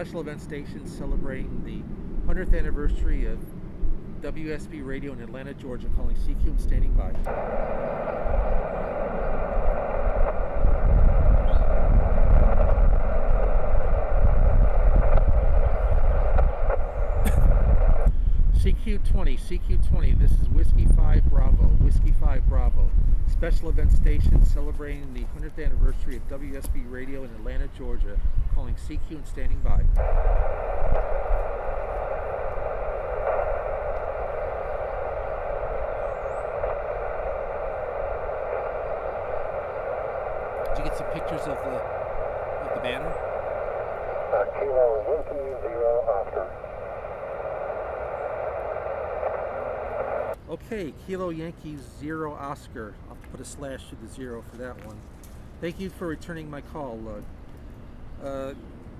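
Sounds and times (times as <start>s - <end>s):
steady low rumble: 0.0s - 50.8s
radio speaker hissing: 5.8s - 50.5s.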